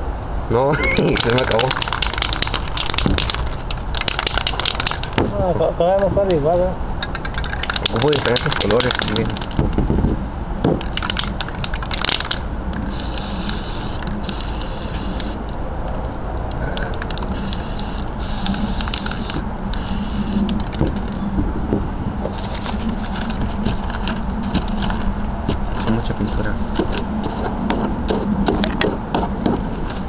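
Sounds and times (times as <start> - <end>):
steady low rumble: 0.0 - 30.0
quick rattling clicks: 1.0 - 5.2, 7.0 - 9.8, 10.8 - 12.4
aerosol spray can hissing: 12.9 - 15.4, 17.3 - 20.4.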